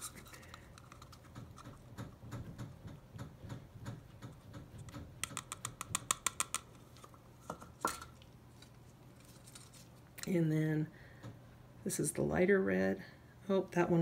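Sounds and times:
plastic cups clicking and tapping: 0.0 - 8.2.

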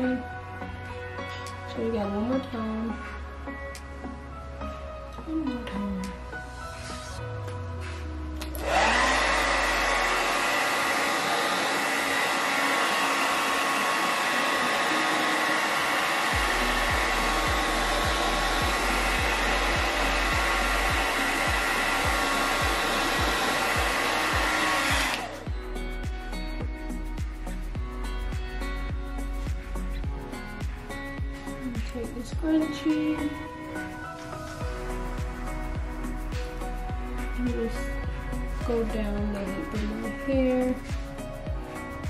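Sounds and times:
hair dryer blowing: 7.8 - 25.6, 30.6 - 42.0.

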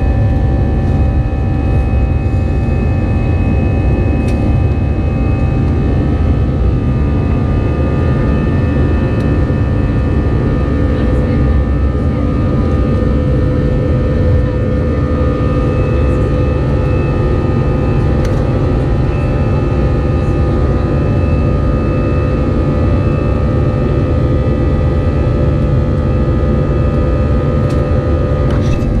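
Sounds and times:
steady hum: 0.0 - 20.9, 28.1 - 29.0
jet engine rumble in cabin: 0.0 - 29.0.

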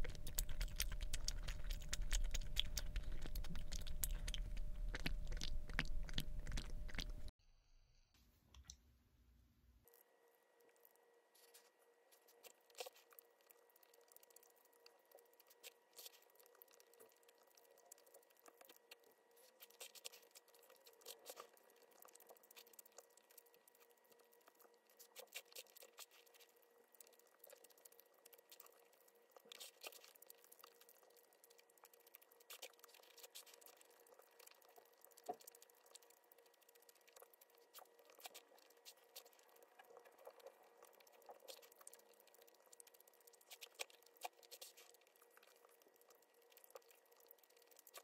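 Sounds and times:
faint steady hum: 0.0 - 48.0.

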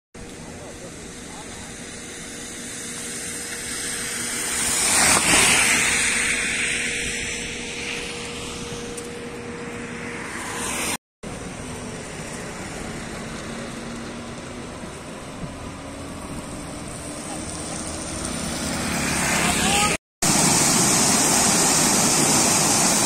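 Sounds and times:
tyres hissing through water: 0.4 - 8.9, 17.0 - 23.0.

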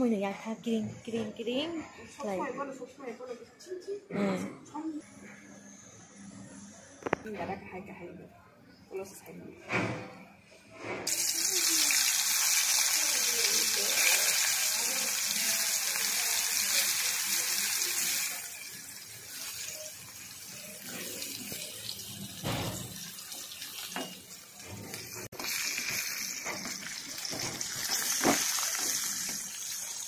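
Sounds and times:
vegetable slices sizzling in oil: 11.1 - 30.0.

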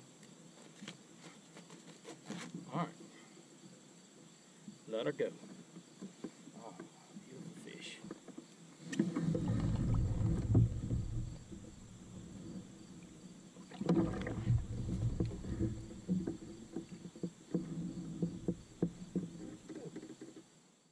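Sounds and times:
knocks and clunks in kayak: 5.4 - 20.4
plastic board against hull: 8.0 - 20.4.

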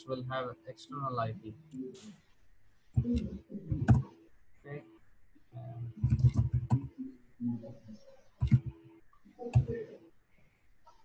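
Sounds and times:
keyboard keys typing: 3.0 - 4.1, 5.9 - 7.1, 8.4 - 8.8, 9.4 - 10.0.

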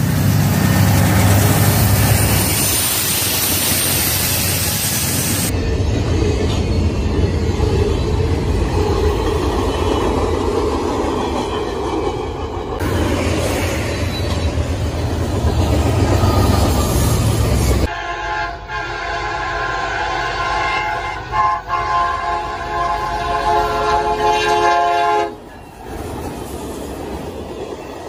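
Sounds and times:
train wheels rumbling: 0.0 - 28.0
locomotive air horn: 17.8 - 25.4.

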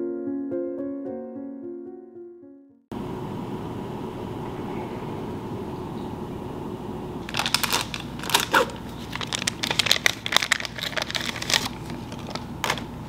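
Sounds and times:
low room hum: 2.9 - 13.0
packaging crinkling: 7.2 - 13.0.

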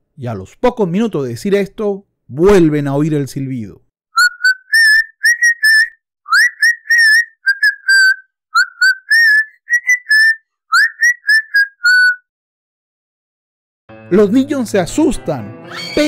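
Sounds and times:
person whistling a tune: 4.2 - 12.3.

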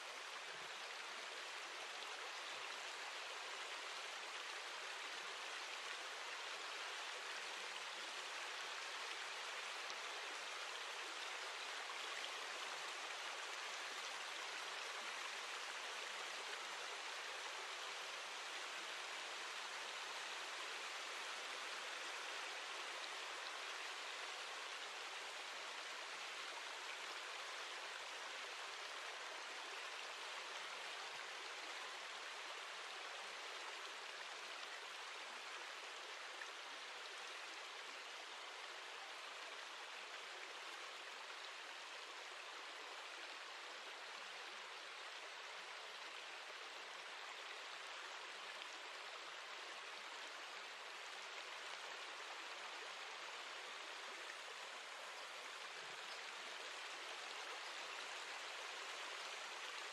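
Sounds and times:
steady water ambience: 0.0 - 59.9.

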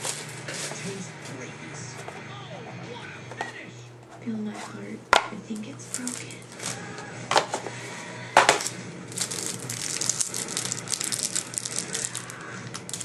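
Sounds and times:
plastic packaging crinkling: 0.0 - 0.8, 5.8 - 7.6, 8.4 - 13.0.

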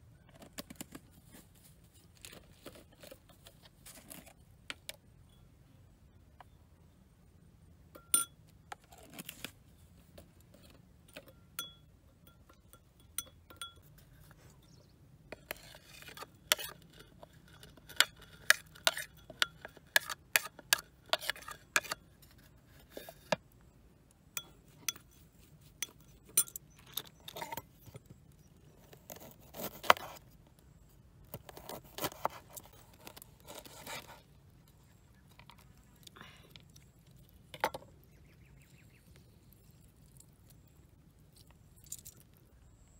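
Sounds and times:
metal spoon clinking on ceramic bowl: 8.0 - 8.4, 11.2 - 14.0, 25.8 - 26.6.

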